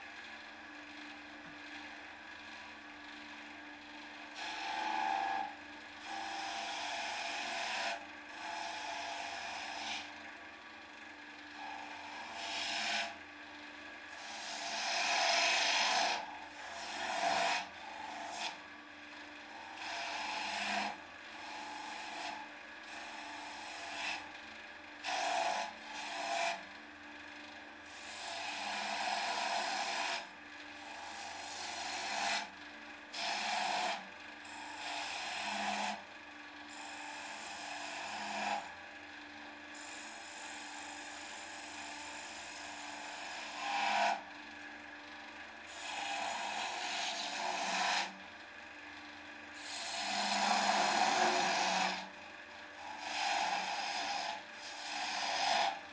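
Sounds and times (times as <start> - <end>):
wood lathe motor hum: 0.0 - 55.9
turning tool scraping wood: 4.4 - 10.1, 11.6 - 13.2, 14.1 - 18.6, 19.5 - 24.3, 25.0 - 26.6, 27.9 - 32.5, 33.1 - 36.0, 36.7 - 38.7, 39.8 - 44.2, 45.7 - 48.2, 49.6 - 52.1, 52.8 - 55.8.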